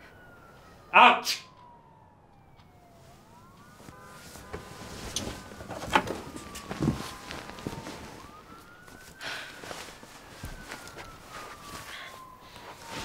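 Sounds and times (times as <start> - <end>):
emergency siren wailing: 0.0 - 13.0.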